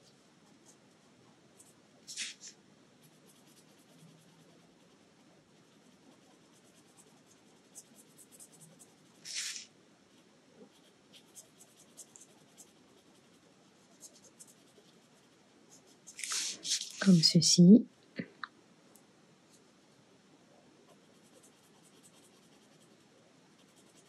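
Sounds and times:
pen scratching on paper: 0:03.0 - 0:05.0, 0:05.6 - 0:09.6, 0:10.6 - 0:16.2, 0:20.9 - 0:24.0.

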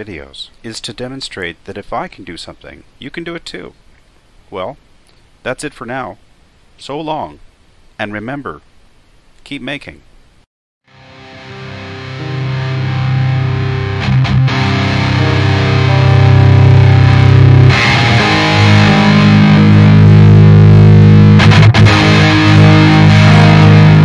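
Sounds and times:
distorted guitar chords: 0:10.9 - 0:24.0.

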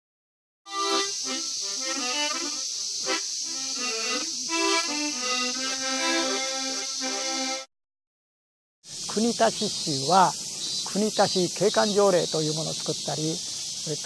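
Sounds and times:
harmonica playing chords: 0:00.7 - 0:07.7.

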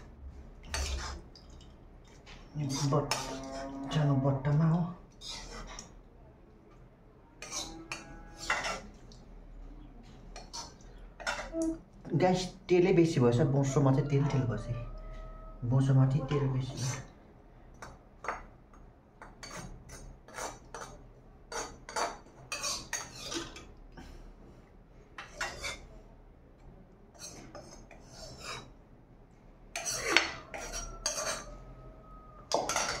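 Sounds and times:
metal spoon scraping in wok: 0:00.6 - 0:01.2, 0:02.6 - 0:03.8, 0:05.2 - 0:05.9, 0:07.4 - 0:08.9, 0:27.1 - 0:28.7, 0:29.7 - 0:31.7.

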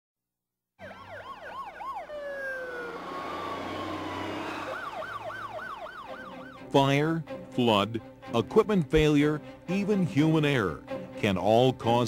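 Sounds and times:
steady siren tone: 0:00.8 - 0:06.7
emergency siren yelping: 0:00.8 - 0:06.8
low engine hum: 0:02.6 - 0:05.3.

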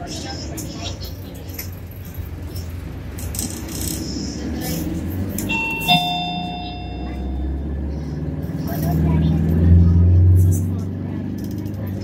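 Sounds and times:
bus engine rumbling: 0:00.0 - 0:12.0
two-note electronic chime: 0:05.5 - 0:07.6.

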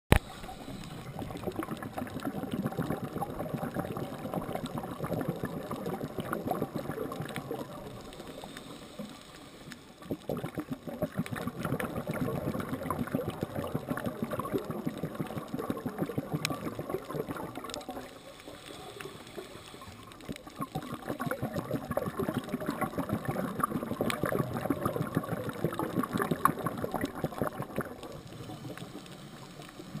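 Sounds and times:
underwater bubbling and gurgling: 0:00.1 - 0:30.0.

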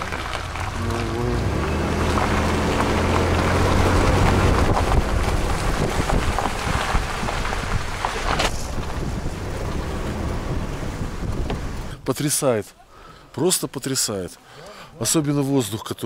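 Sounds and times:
car engine hum: 0:00.0 - 0:12.0
wind rushing over microphone: 0:02.6 - 0:12.0.

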